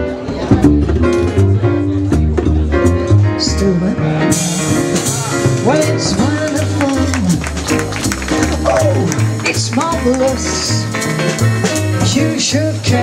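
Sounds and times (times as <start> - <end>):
bass line: 0.0 - 13.0
swing jazz band playing: 0.0 - 13.0
woman singing: 12.0 - 13.0.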